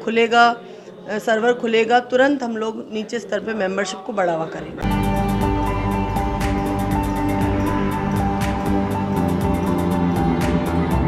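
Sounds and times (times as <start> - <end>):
news theme music: 4.8 - 11.0.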